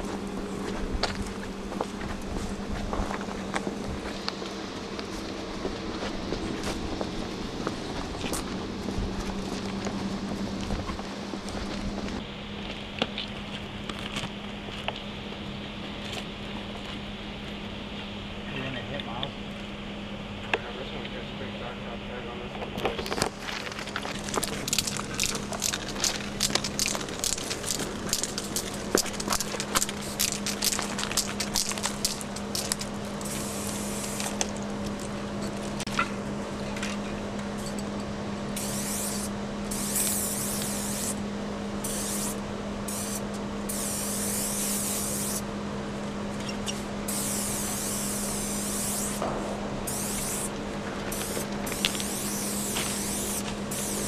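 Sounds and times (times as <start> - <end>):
steady low hum: 0.0 - 54.0
rapid clicks and rattles: 22.8 - 37.9
spray paint can hissing: 24.1 - 34.4, 38.6 - 41.2, 41.8 - 45.4, 46.6 - 49.2, 49.9 - 50.5, 51.1 - 54.0.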